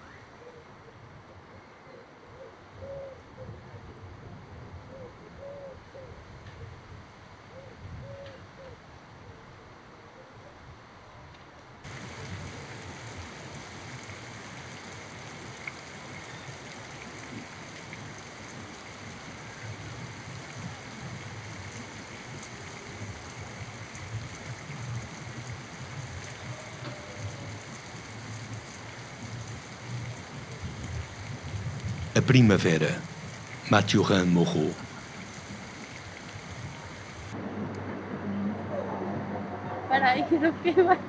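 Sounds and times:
continuous rushing noise: 0:10.8 - 0:41.0
faint low rumble: 0:30.6 - 0:41.0.

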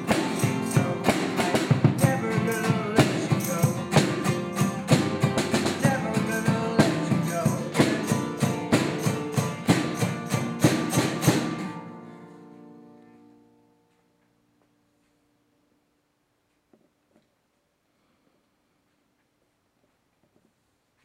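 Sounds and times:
acoustic guitars strummed: 0:00.0 - 0:13.9.

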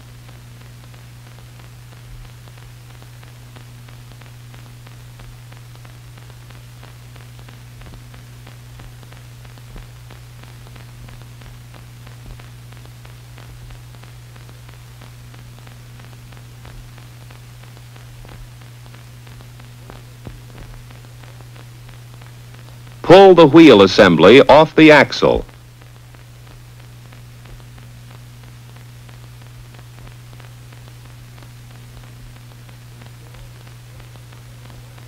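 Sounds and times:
faint crackling clicks: 0:00.1 - 0:23.1, 0:25.5 - 0:35.0.

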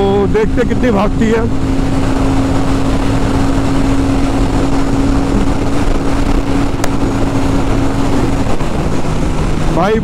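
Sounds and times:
heavy wind rush: 0:00.0 - 0:10.0
motorcycle engine at high speed: 0:00.0 - 0:10.0.

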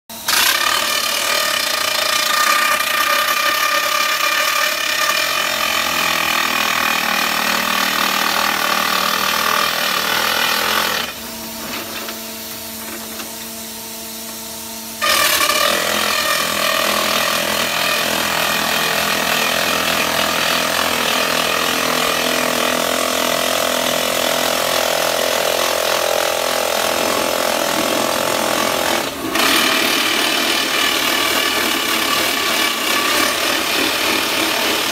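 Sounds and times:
steady machine hum: 0:00.1 - 0:34.9
rock drill hammering: 0:00.2 - 0:11.2, 0:15.0 - 0:34.9.

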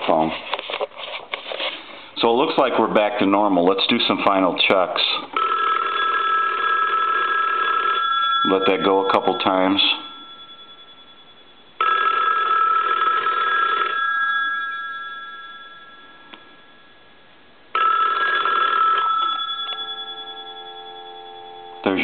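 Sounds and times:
telephone bells ringing: 0:05.4 - 0:22.0.

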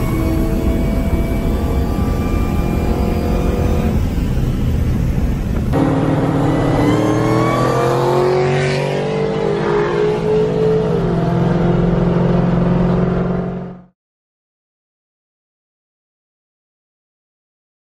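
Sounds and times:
car exhaust under acceleration: 0:00.0 - 0:13.9
steady low drone: 0:00.0 - 0:13.9.

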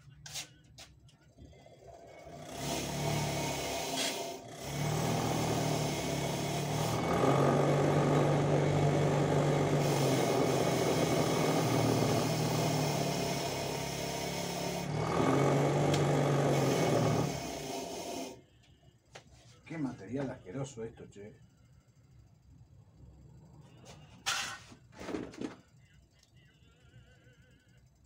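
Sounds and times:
electric polishing tool grinding: 0:02.2 - 0:18.4.

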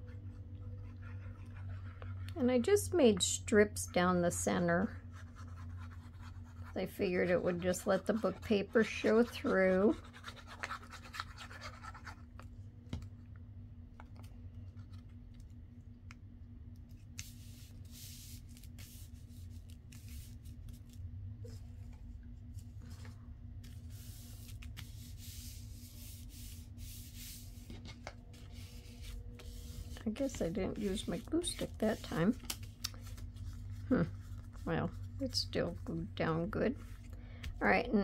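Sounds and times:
steady low hum: 0:00.0 - 0:38.0
hands rubbing paper: 0:05.1 - 0:12.2, 0:17.2 - 0:21.0, 0:23.6 - 0:36.0.

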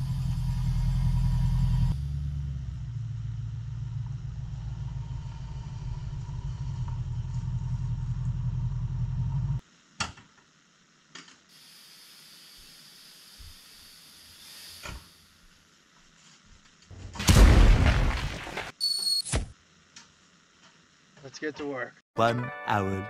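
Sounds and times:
car engine idling: 0:00.0 - 0:09.6.

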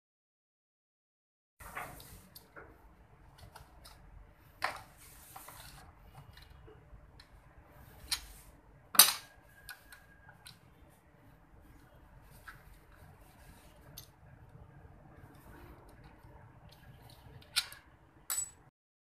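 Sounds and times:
metal tools clinking on engine block: 0:18.3 - 0:18.6.

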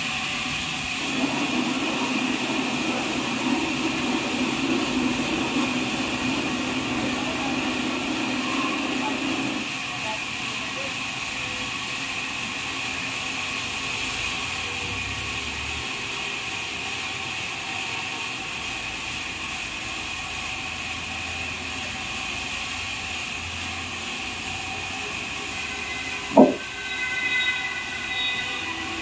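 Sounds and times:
band sawmill humming and whining: 0:00.0 - 0:09.8, 0:23.6 - 0:29.0
sharp loud knock: 0:26.3 - 0:26.6.

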